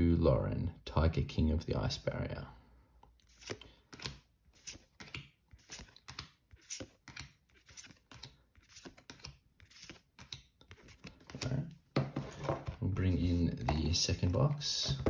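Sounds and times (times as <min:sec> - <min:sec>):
cards being flipped: 0:03.2 - 0:11.6.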